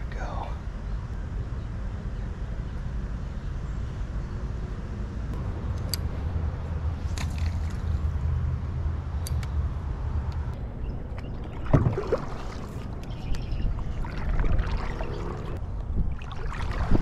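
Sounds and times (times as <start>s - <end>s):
paddle splashing in water: 11.2s - 13.0s, 13.8s - 17.0s.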